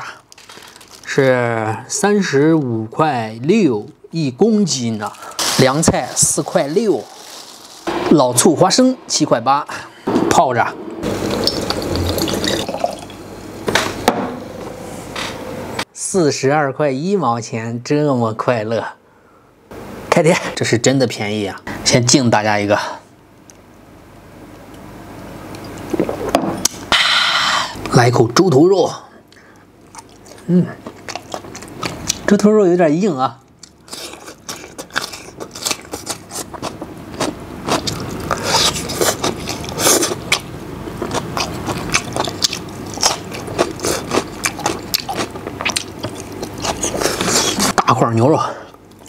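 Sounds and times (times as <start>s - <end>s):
man chewing food: 11.0s - 13.1s, 29.3s - 32.3s, 33.5s - 47.8s, 48.7s - 49.0s
person drinking: 11.1s - 13.1s, 25.8s - 27.0s.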